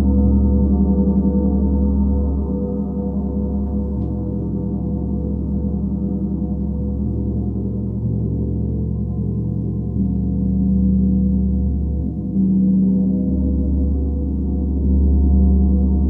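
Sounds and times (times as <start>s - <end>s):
gong low drone: 0.0s - 16.0s.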